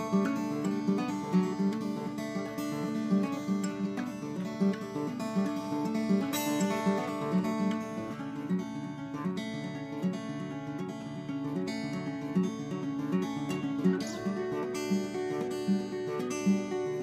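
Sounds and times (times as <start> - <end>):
acoustic guitar picking: 0.0 - 17.0.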